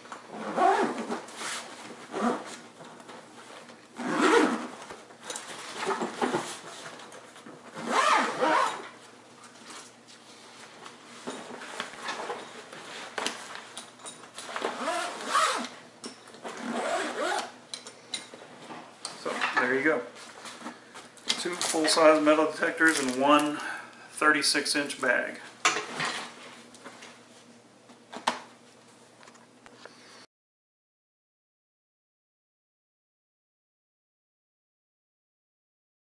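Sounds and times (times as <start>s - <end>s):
zipper closing: 0.3s - 2.6s, 4.0s - 4.8s, 5.6s - 6.7s, 7.7s - 8.9s, 14.4s - 15.8s, 16.4s - 17.6s.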